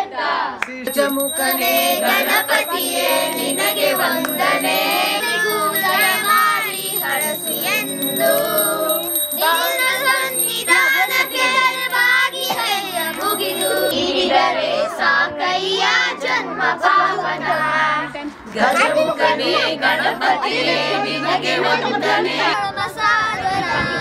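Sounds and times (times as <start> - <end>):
group singing devotional song: 0.0 - 23.8
small bell ringing: 0.9 - 14.0, 18.6 - 21.0.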